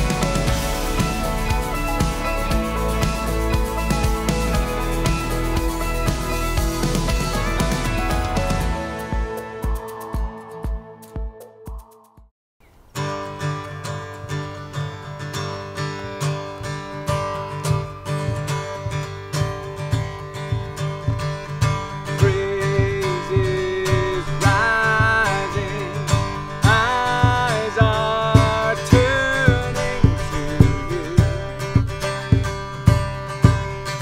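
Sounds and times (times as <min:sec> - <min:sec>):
band music with acoustic guitar: 0:00.0 - 0:11.3, 0:13.0 - 0:34.0
gliding lead melody: 0:00.0 - 0:11.7.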